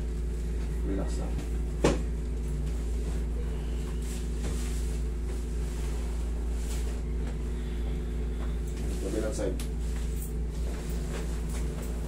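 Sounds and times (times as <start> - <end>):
air conditioner humming: 0.0 - 12.0
hands rustling clothing: 8.4 - 12.0.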